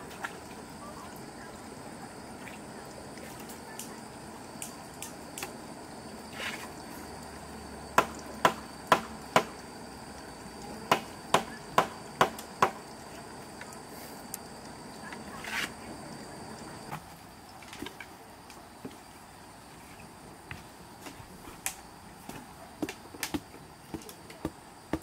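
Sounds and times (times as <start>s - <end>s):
wooden post being pounded: 8.0s - 9.6s, 10.9s - 12.8s.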